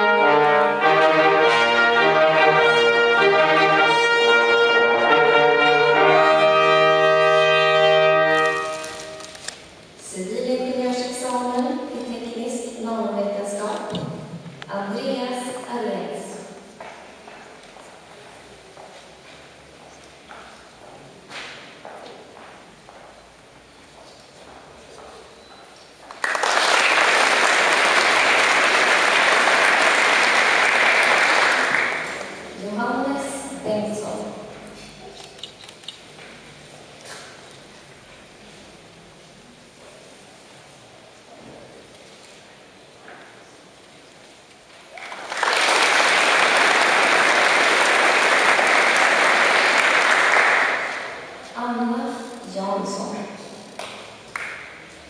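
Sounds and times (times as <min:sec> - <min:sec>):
audience applauding: 0:26.0 - 0:32.6, 0:44.8 - 0:51.5, 0:53.7 - 0:55.0.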